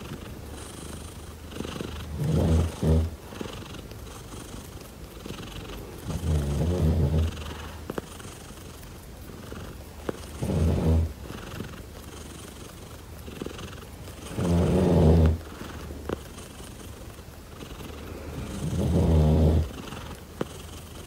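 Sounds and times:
cat purring: 0.0s - 21.0s
faint clicks: 3.4s - 19.0s.

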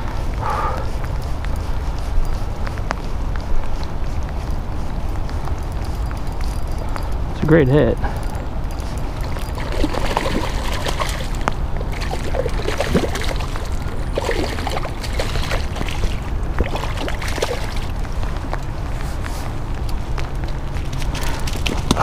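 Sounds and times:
steady low rumble: 0.0s - 22.0s
fish splashing and thrashing: 9.0s - 18.1s.

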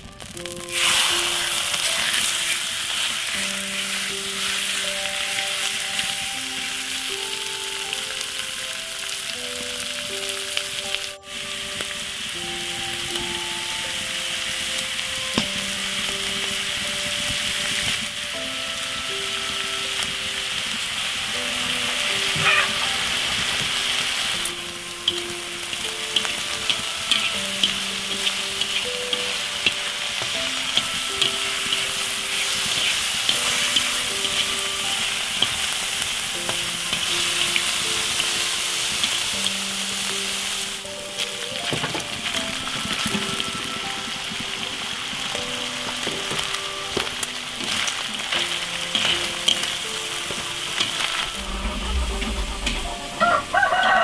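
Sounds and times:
meat sizzling in a wok: 0.0s - 54.0s
soft background music: 0.0s - 54.0s.

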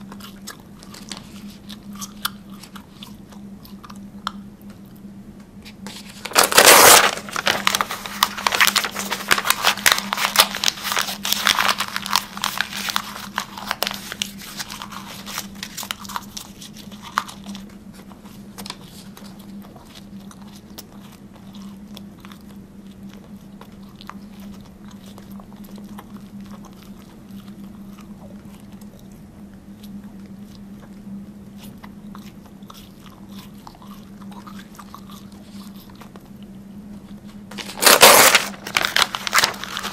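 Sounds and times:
steady low hum: 0.0s - 39.9s
person biting and crunching: 6.3s - 17.6s.

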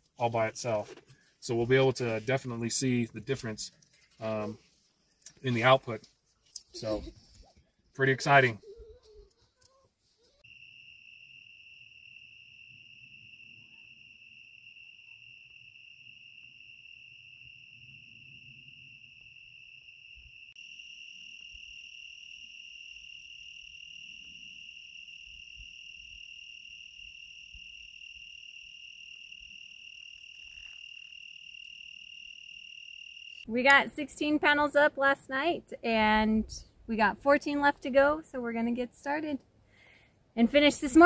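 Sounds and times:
crickets chirping: 9.6s - 34.4s.

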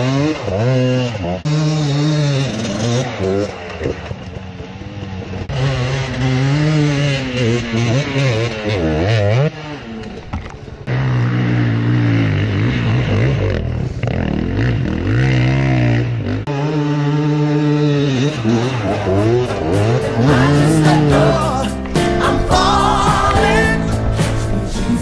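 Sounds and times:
dirt bike engines revving: 0.0s - 25.0s.

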